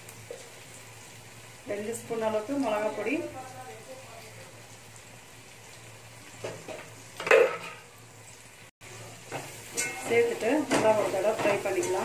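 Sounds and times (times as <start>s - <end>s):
food sizzling in pot: 0.0s - 12.0s
utensil clanking against pot: 6.4s - 7.8s.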